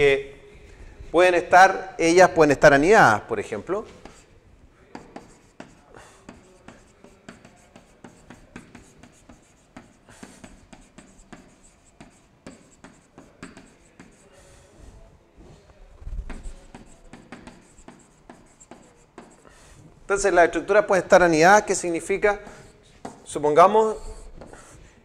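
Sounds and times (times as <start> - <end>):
stylus tapping and scratching: 3.5 - 14.4, 16.0 - 25.0.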